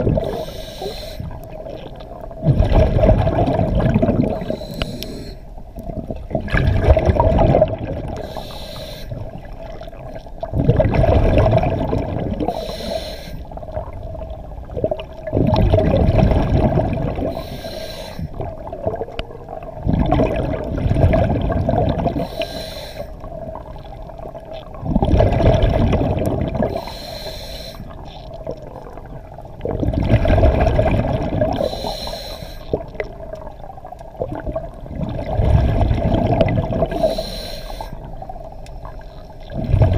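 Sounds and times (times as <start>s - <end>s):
exhaled bubbles gushing: 0.0s - 0.5s, 1.2s - 5.0s, 5.7s - 8.4s, 9.2s - 12.9s, 13.5s - 17.5s, 18.3s - 22.4s, 23.2s - 27.0s, 27.9s - 31.9s, 32.7s - 37.2s, 38.0s - 39.9s
regulator inhale hiss: 0.2s - 1.4s, 4.4s - 5.5s, 8.2s - 9.2s, 12.5s - 13.5s, 17.3s - 18.4s, 22.2s - 23.3s, 26.7s - 28.0s, 31.6s - 32.8s, 36.9s - 38.1s.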